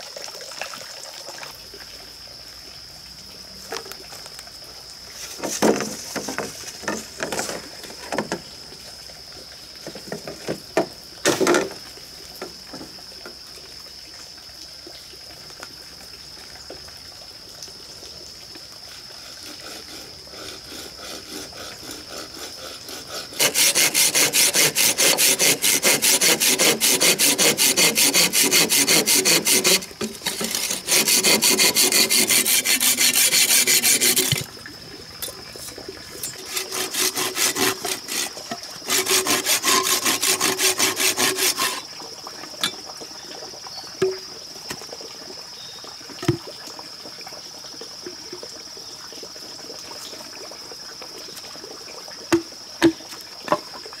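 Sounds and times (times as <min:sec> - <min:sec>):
bamboo knocks and rustles: 0:05.2 - 0:08.4, 0:09.8 - 0:11.8
hand saw cutting bamboo: 0:19.2 - 0:34.5, 0:35.6 - 0:41.9.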